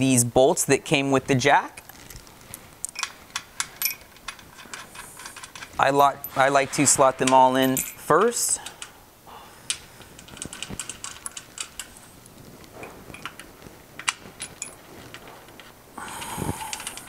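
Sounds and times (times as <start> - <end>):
metal bolts clicking and clinking: 2.9 - 9.0, 9.7 - 12.0, 12.8 - 17.0
metal scraping: 3.8 - 8.1.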